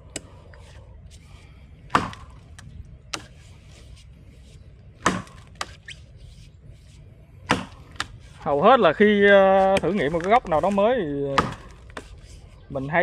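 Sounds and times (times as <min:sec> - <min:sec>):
axe chopping wood: 0:01.8 - 0:03.3, 0:05.0 - 0:05.8, 0:07.4 - 0:08.2, 0:09.3 - 0:12.1.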